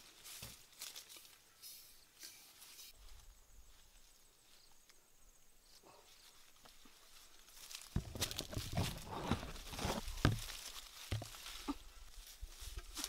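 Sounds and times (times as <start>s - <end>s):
tree foliage rustling: 0.0s - 13.0s
branches snapping: 7.6s - 11.7s.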